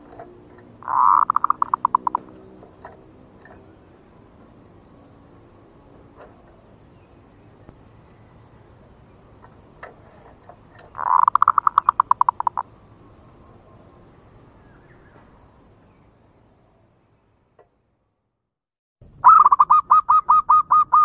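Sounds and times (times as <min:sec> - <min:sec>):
dove calling rapid notes: 0:00.8 - 0:02.5, 0:10.9 - 0:12.7, 0:19.2 - 0:21.0.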